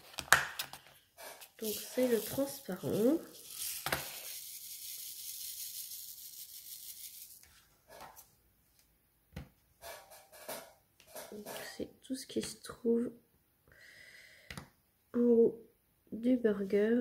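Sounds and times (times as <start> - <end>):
plastic beads rattling in tray: 1.3 - 7.4.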